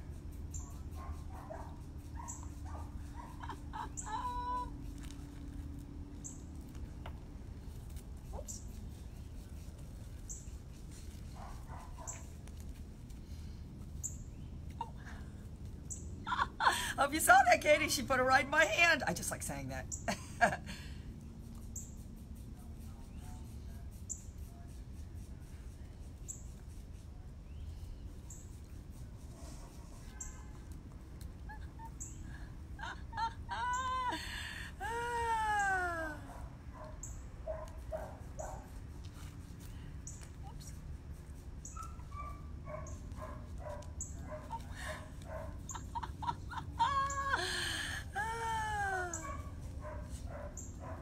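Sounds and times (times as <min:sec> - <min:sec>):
low steady rumble: 0:00.0 - 0:19.2.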